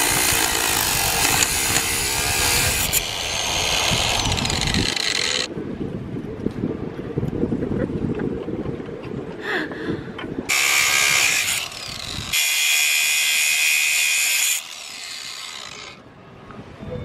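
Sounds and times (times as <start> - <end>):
angle grinder cutting steel chain: 0.0 - 5.5, 10.5 - 16.0.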